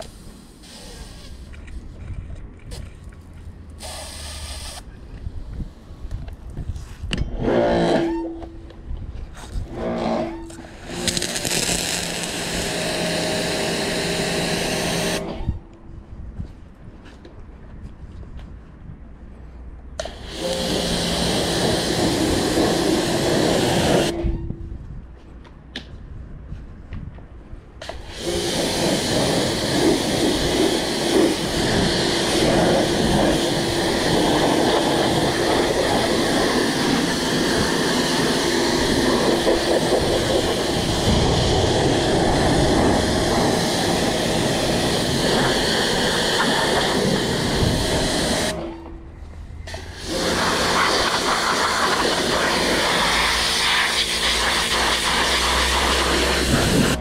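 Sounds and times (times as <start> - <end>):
pressure washer spraying water: 0.0 - 1.5, 3.8 - 4.8, 10.7 - 15.3, 20.0 - 24.2, 27.8 - 48.6, 49.7 - 57.0.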